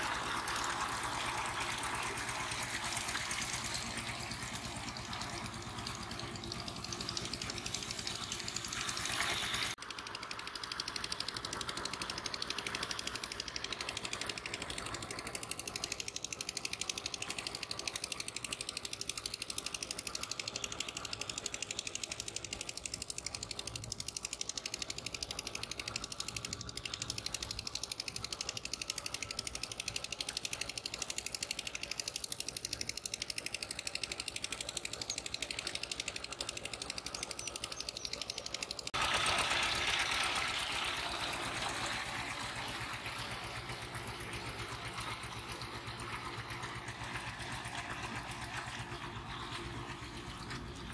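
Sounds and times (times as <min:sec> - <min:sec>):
small motor clattering: 0:00.0 - 0:50.9.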